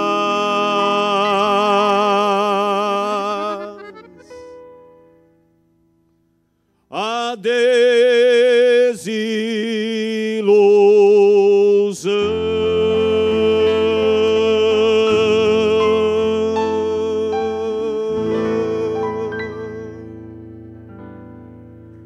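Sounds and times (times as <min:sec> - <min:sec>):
man singing with vibrato: 0:00.0 - 0:04.8, 0:06.9 - 0:20.5
acoustic guitar keyboard and accordion: 0:00.0 - 0:06.9, 0:12.1 - 0:22.0.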